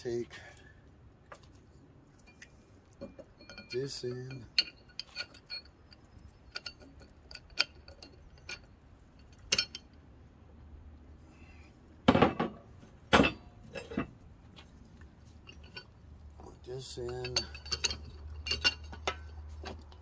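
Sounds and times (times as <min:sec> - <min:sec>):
steel parts clinking: 0:02.2 - 0:10.0, 0:12.2 - 0:14.2, 0:15.3 - 0:20.0
metal clanks: 0:02.3 - 0:10.0, 0:12.1 - 0:14.7, 0:15.3 - 0:20.0.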